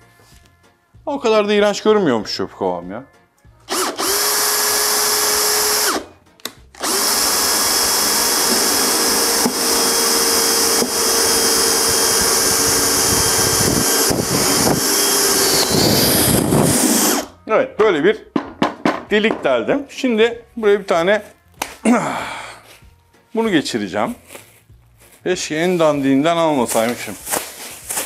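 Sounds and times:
electric drill boring through plastic: 3.7s - 6.1s, 6.8s - 17.4s.

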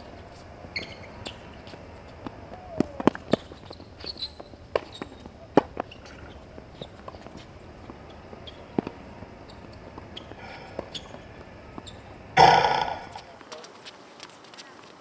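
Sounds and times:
tennis balls struck by rackets: 4.6s - 13.3s.

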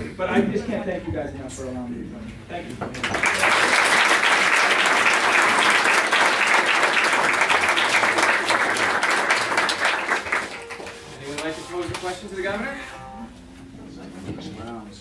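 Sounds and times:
audience applauding: 3.0s - 11.1s.

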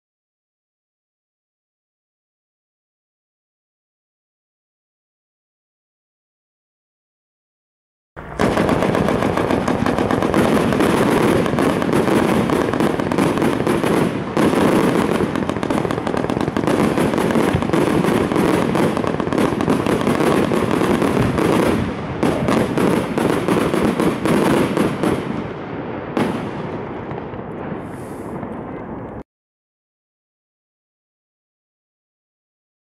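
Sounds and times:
fireworks launching and bursting: 8.2s - 29.2s.

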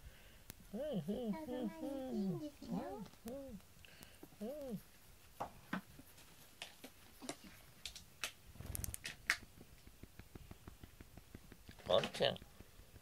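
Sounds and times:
hand petting cat fur: 4.3s - 7.9s, 8.6s - 13.0s.

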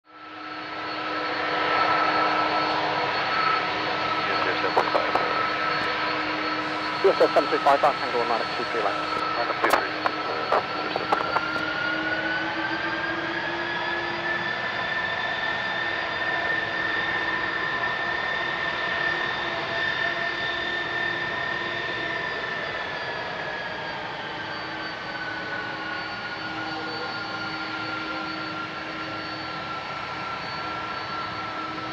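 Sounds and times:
jet engines whining: 0.2s - 18.0s.

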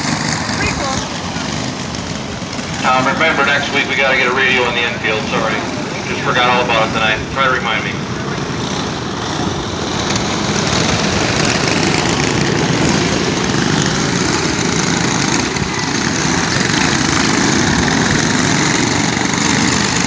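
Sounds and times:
go-kart engines buzzing: 0.0s - 20.0s.

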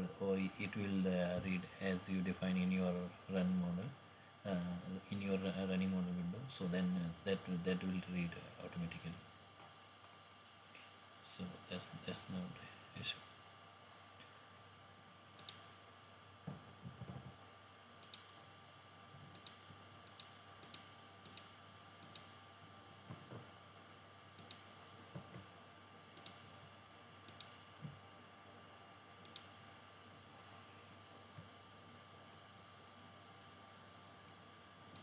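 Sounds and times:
faint steady hum: 0.0s - 35.0s
computer mouse clicking: 15.4s - 15.7s, 18.0s - 18.4s, 19.3s - 22.4s, 24.4s - 24.8s, 26.2s - 26.6s, 27.2s - 27.6s, 29.2s - 29.6s.

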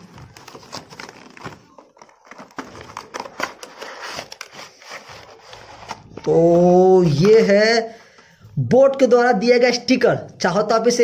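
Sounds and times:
cardboard box rustling: 0.0s - 7.5s.

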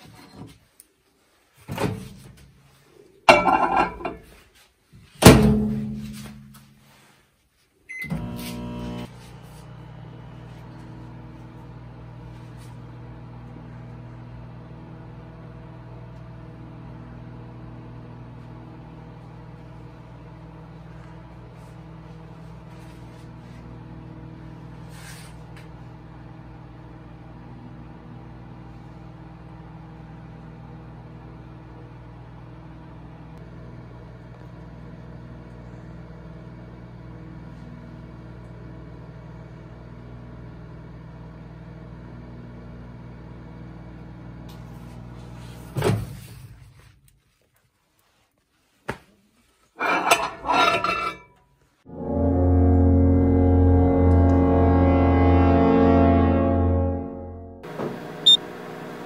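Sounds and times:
microwave oven humming: 7.9s - 46.4s, 51.9s - 59.0s.

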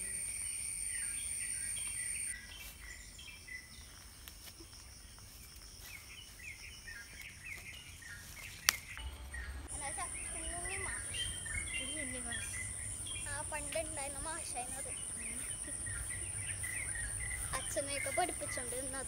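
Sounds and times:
birds chirping: 0.0s - 4.2s, 5.0s - 19.0s.

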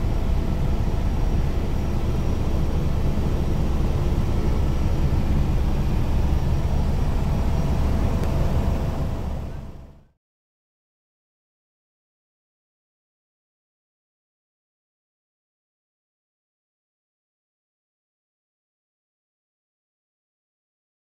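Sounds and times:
faint high whine: 0.0s - 10.1s
helicopter rotor and engine drone: 0.0s - 10.1s.

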